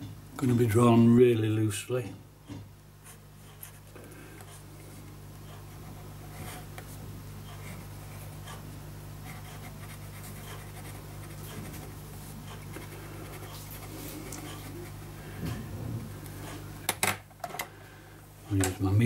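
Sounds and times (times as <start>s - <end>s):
steady low hum: 0.0s - 19.0s
pen nib scratching paper: 5.4s - 8.6s, 9.2s - 15.0s.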